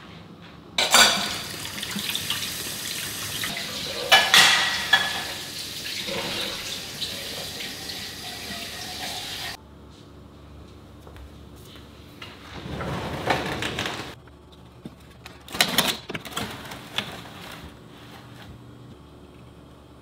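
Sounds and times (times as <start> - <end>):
plates clinking: 0.8 - 1.6, 3.8 - 5.5.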